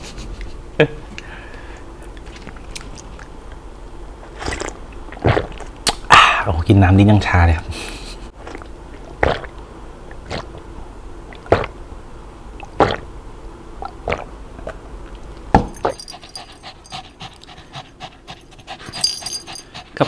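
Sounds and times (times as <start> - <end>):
small dog panting: 15.9 - 20.0.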